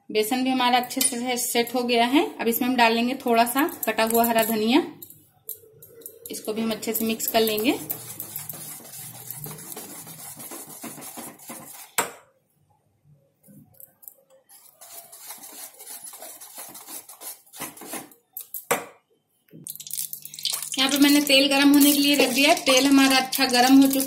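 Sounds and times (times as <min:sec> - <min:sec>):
whisk scraping metal bowl: 0:06.0 - 0:12.0, 0:14.5 - 0:18.2.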